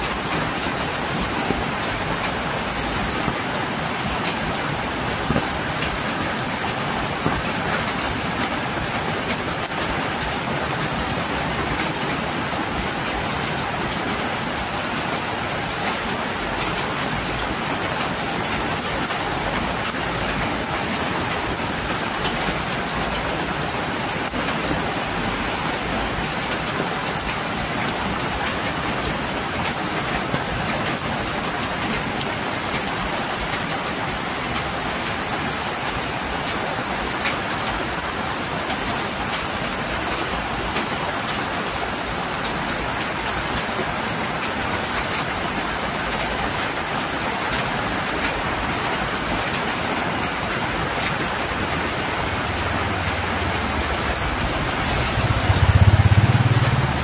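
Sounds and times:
heavy rain on a street: 0.0 - 57.0
water running off a roof: 0.0 - 57.0
motorcycle engine approaching: 52.9 - 57.0.

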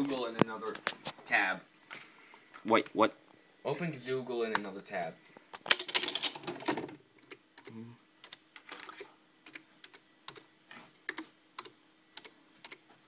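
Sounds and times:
keyboard typing clicks: 7.2 - 12.8.

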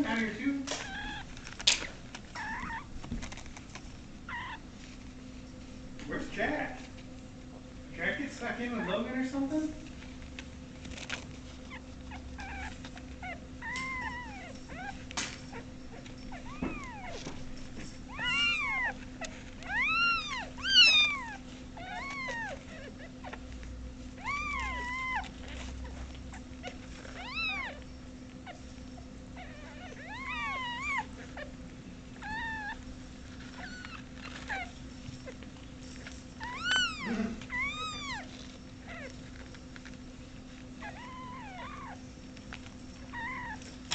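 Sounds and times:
kittens meowing: 0.0 - 3.5, 4.2 - 4.7, 11.6 - 23.6, 24.2 - 35.4, 36.4 - 40.0, 40.8 - 42.0, 43.0 - 43.9
low electrical hum: 0.0 - 43.9.

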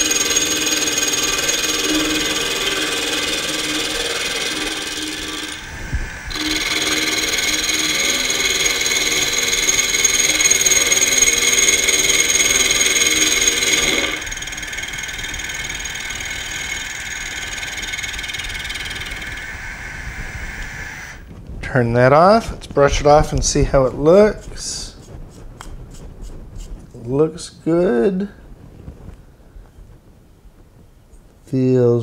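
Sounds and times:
end mill cutting metal: 0.0 - 20.2
milling spindle running: 0.0 - 21.2.

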